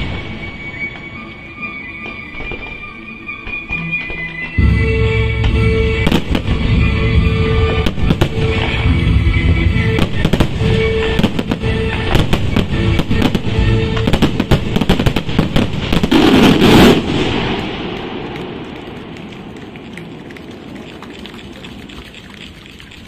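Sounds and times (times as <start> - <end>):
music playing: 0.0 - 16.4
fireworks bangs: 0.0 - 22.0.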